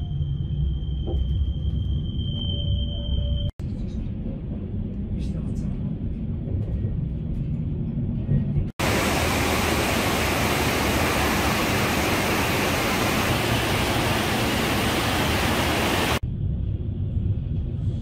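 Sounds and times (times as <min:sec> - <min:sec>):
train rumble inside car: 0:01.0 - 0:18.0
river rapids rushing: 0:08.8 - 0:16.2.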